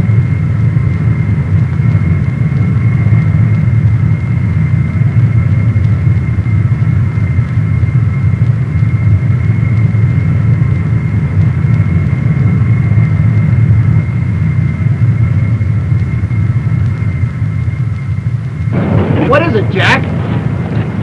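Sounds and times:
high jet engine whine: 0.0 - 21.0
jet engines roaring: 0.0 - 21.0.

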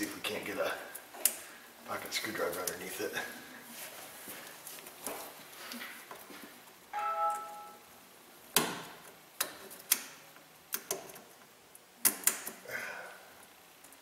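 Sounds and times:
short ringing ping: 7.0 - 7.8.

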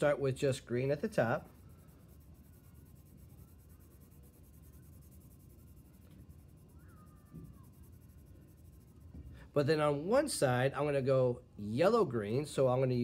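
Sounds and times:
pencil scratching on paper: 1.4 - 9.1.

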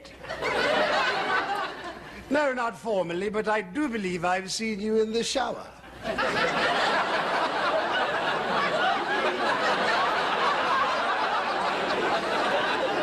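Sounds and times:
studio audience laughing: 0.1 - 2.2, 5.9 - 13.0.

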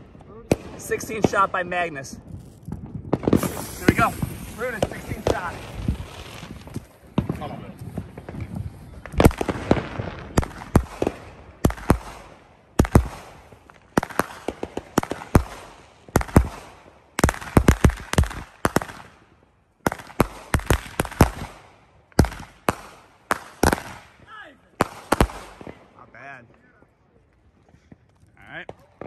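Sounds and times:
firework cake shots and bursts: 0.4 - 26.0.

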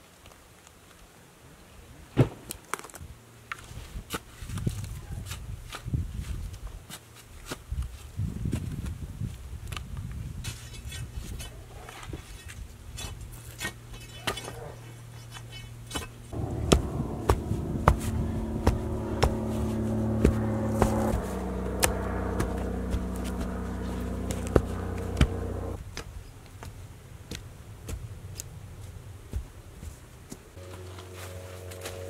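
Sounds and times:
engine humming: 16.0 - 25.8, 30.5 - 32.0.

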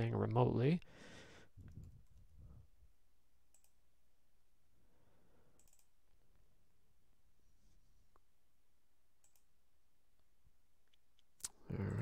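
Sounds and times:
faint room hum: 0.0 - 12.0
soft computer clicks: 3.5 - 3.8, 5.6 - 6.0, 9.2 - 9.5.

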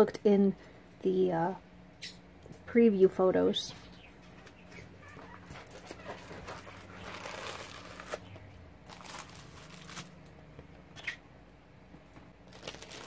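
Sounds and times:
plastic sleeve crinkling: 5.0 - 10.4, 12.4 - 13.0.

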